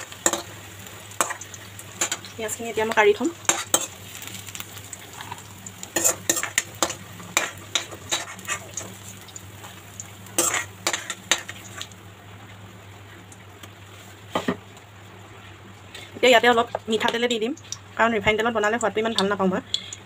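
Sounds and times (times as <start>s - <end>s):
hot oil sizzling: 0.0s - 20.0s
spoon scraping metal pan: 6.0s - 8.8s, 10.4s - 11.6s.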